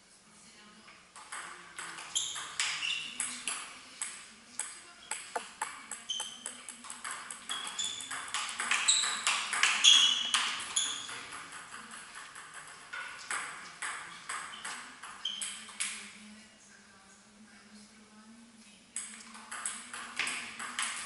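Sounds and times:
table tennis ball hits: 0:01.2 - 0:15.6, 0:19.0 - 0:21.0.

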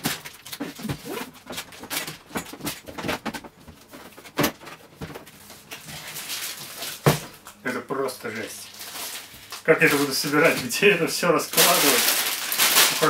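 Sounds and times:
plastic bags crinkling: 0:05.2 - 0:07.6, 0:08.2 - 0:13.0.

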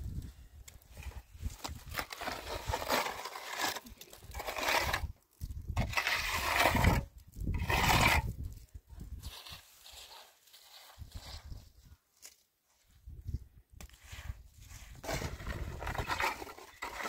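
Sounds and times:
trowel scraping mortar on wall: 0:01.8 - 0:08.4, 0:09.2 - 0:11.7, 0:14.0 - 0:17.0.

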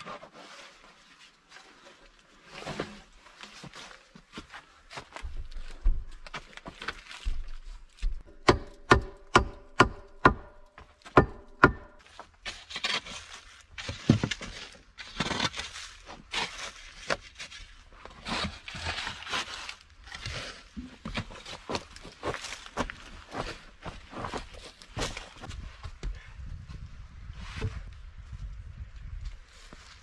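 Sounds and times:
spade chopping hard earth: 0:08.2 - 0:13.0
spade scraping soil: 0:12.0 - 0:21.6.

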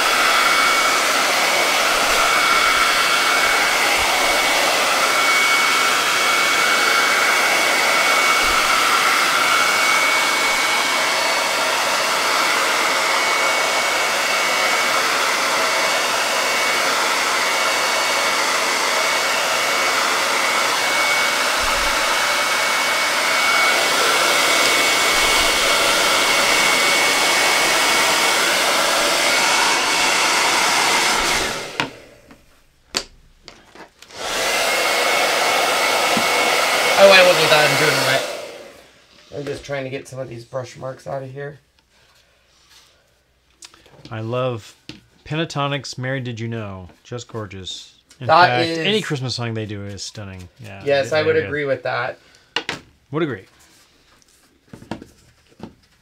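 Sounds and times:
blow dryer whining: 0:00.0 - 0:33.1, 0:34.0 - 0:39.6, 0:48.3 - 0:49.0.

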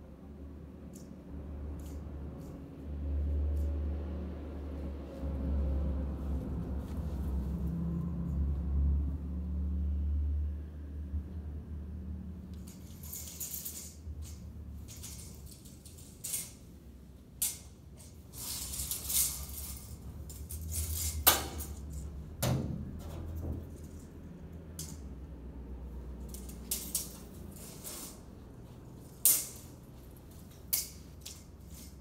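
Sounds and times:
low steady hum: 0:00.0 - 0:32.0
tape measure blade rattling: 0:00.9 - 0:02.8, 0:12.5 - 0:16.8, 0:17.4 - 0:22.1, 0:23.0 - 0:25.1, 0:26.1 - 0:32.0.

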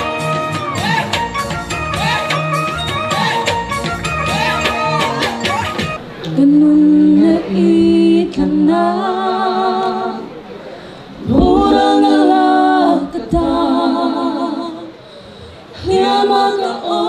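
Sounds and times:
group singing a cappella: 0:06.3 - 0:10.6, 0:11.2 - 0:17.0.

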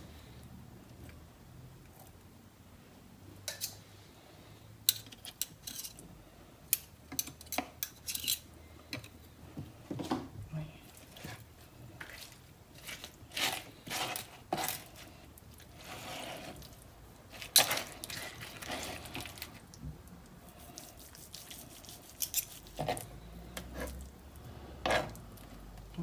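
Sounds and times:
knife and fork scraping board: 0:12.0 - 0:15.0, 0:15.8 - 0:16.7, 0:17.5 - 0:19.4, 0:20.7 - 0:23.1, 0:23.7 - 0:24.0, 0:24.8 - 0:25.2.

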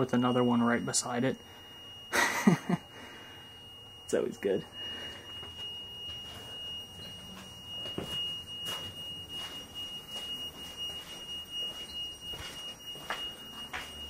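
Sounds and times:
steady high-pitched tone: 0:00.0 - 0:14.0
footsteps on gritty concrete: 0:11.6 - 0:14.0.

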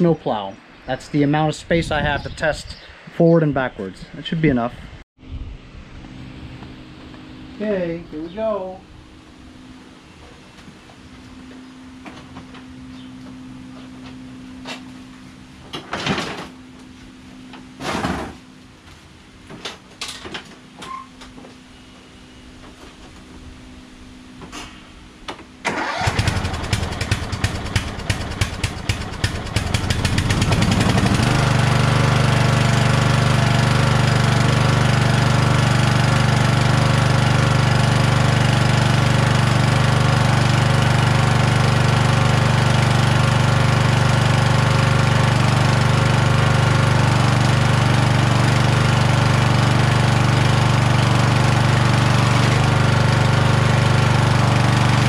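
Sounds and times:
lawn tractor engine cranking and running: 0:25.6 - 0:55.0.

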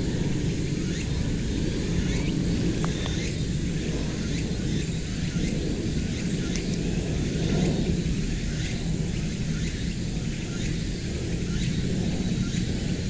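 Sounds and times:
insect chirps: 0:00.0 - 0:13.0
steady low rumble: 0:00.0 - 0:13.0.

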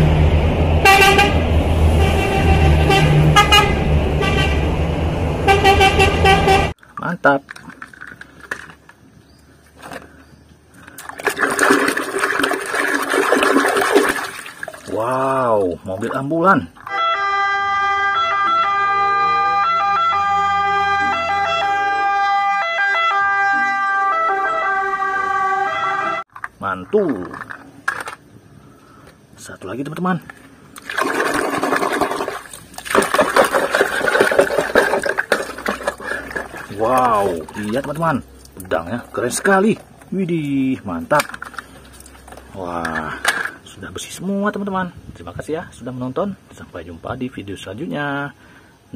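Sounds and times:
truck engines rumbling: 0:00.0 - 0:10.9, 0:14.9 - 0:30.8, 0:33.4 - 0:47.9
vehicle horn tooting: 0:00.8 - 0:04.7, 0:05.4 - 0:06.7, 0:16.9 - 0:26.2
ambulance siren: 0:16.9 - 0:26.3
faint vehicle hum: 0:35.5 - 0:47.8.

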